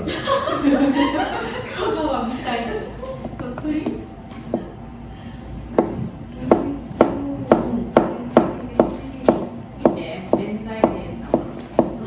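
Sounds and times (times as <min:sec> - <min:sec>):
knife slicing cucumber on board: 0:06.5 - 0:12.0.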